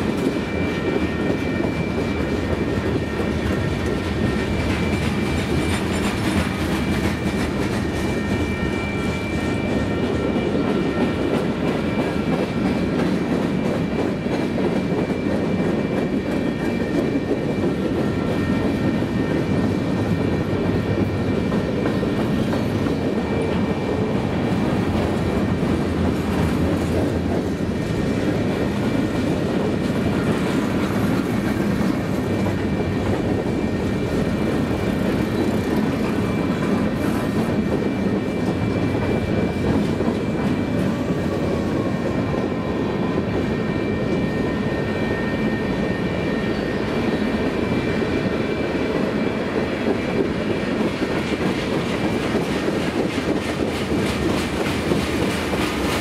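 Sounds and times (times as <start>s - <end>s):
freight train cars rolling: 0.0s - 56.0s.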